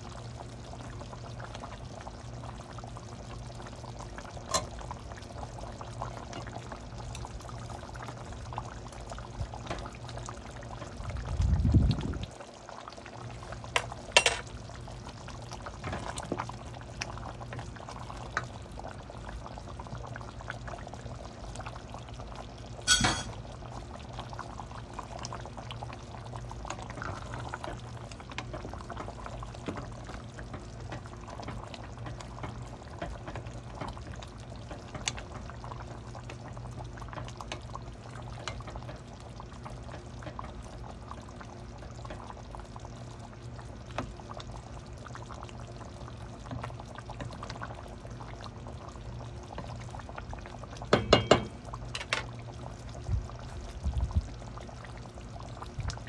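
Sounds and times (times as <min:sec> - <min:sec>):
sauce simmering in a pan: 0:00.0 - 0:56.0
sharp metallic clink: 0:22.9 - 0:23.3.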